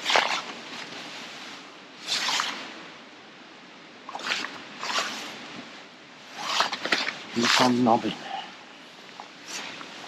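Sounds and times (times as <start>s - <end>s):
clothing rustling swishes: 0.0s - 3.0s, 4.1s - 7.9s, 9.1s - 10.0s
low steady hiss: 0.0s - 10.0s.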